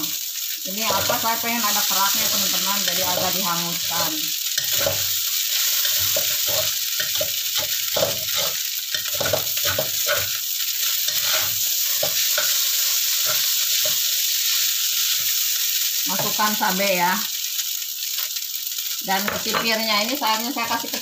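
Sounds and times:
noodles sizzling in hot wok: 0.0 - 21.0
metal spatula scraping wok: 0.8 - 14.1.

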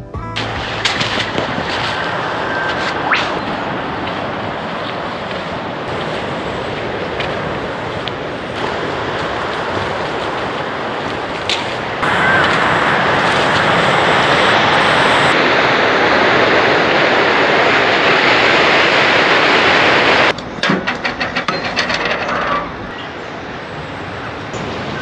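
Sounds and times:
surf breaking on beach: 0.4 - 20.4
wind buffeting microphone: 0.4 - 20.6
rattling knocks: 20.4 - 22.9.

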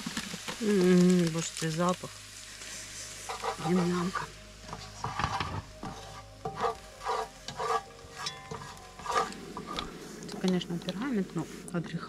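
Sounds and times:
mushrooms sizzling in a frying pan: 0.0 - 12.0
utensil scraping pan: 2.9 - 11.6.

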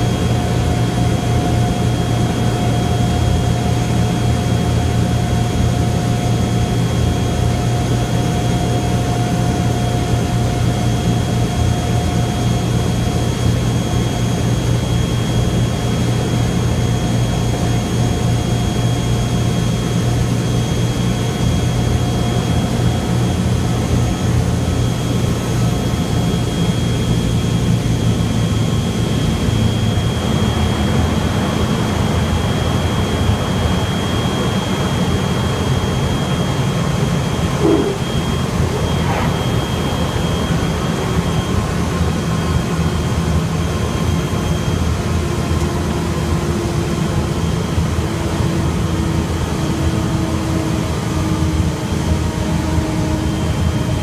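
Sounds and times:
propeller engines droning: 0.0 - 54.0
thin high whine: 37.3 - 41.3.

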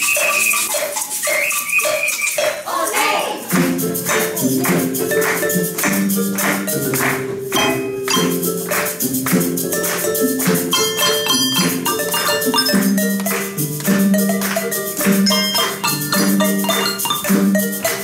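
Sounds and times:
handbell choir playing: 0.0 - 2.7, 3.5 - 18.0
quick percussion beat: 0.0 - 2.7, 3.4 - 18.0
bells struck with mallets: 3.5 - 18.0.

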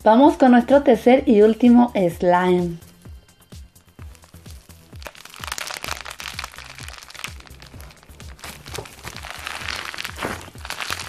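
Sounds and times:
background music with bass: 0.0 - 11.0
slime crackling and popping: 4.0 - 11.0.

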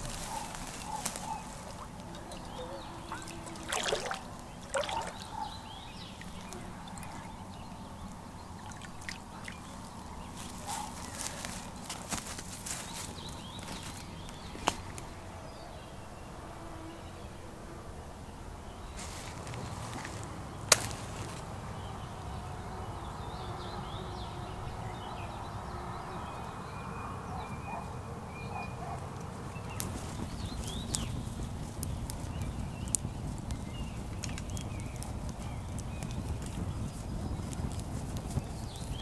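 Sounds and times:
campfire crackling and popping: 0.0 - 15.2, 19.0 - 21.5, 29.2 - 39.0.

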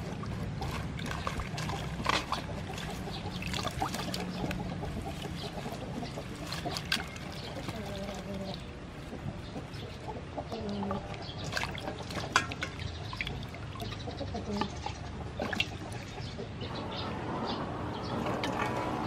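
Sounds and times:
water splashing in a bowl: 0.0 - 8.7, 10.7 - 16.1, 18.2 - 19.0
chicken clucking: 0.4 - 12.5, 13.2 - 17.1.

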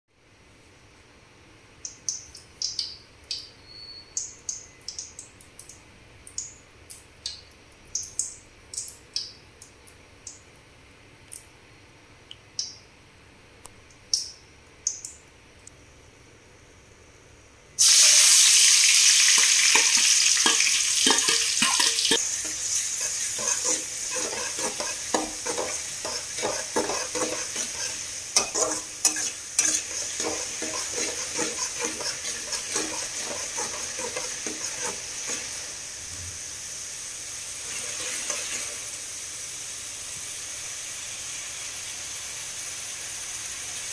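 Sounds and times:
hot oil popping: 17.8 - 36.0, 37.4 - 39.3
vegetables sizzling in oil: 17.8 - 43.9
spoon scraping a pan: 19.3 - 35.8, 37.6 - 38.9.

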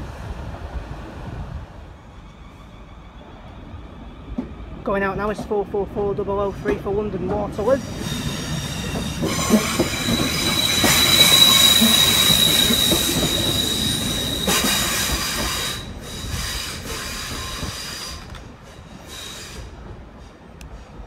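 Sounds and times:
electric train squealing: 2.0 - 4.7, 7.6 - 19.8.

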